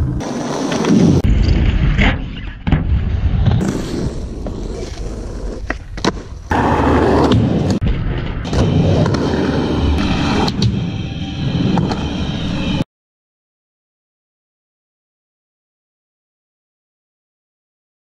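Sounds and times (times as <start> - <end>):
skateboard wheels rolling on concrete: 0.0 - 12.6.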